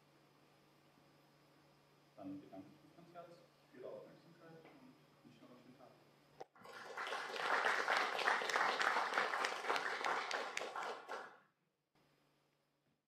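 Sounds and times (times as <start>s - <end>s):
audience applauding: 6.6s - 11.4s.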